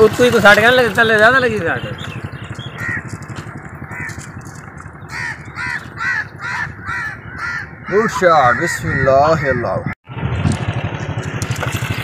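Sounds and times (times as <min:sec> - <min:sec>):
low steady rumble: 0:00.0 - 0:08.7
crow cawing: 0:02.7 - 0:10.0.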